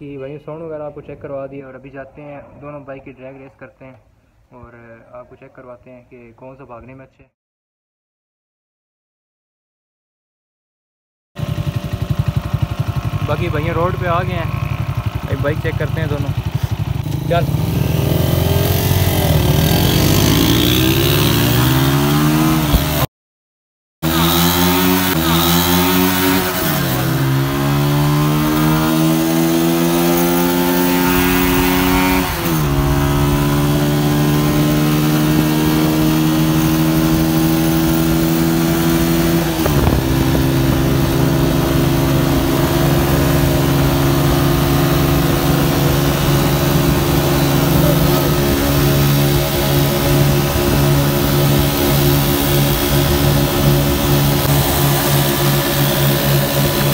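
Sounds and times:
motorcycle engine accelerating: 11.4s - 23.1s, 24.0s - 56.9s.

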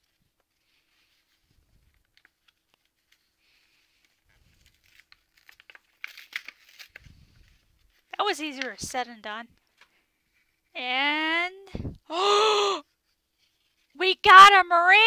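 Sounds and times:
foil wrapper tearing and crinkling: 1.9s - 8.1s.

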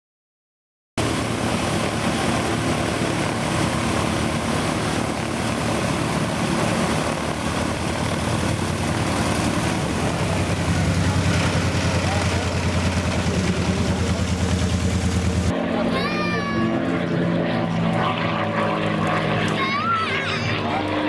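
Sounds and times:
propeller engines droning: 1.0s - 21.0s.

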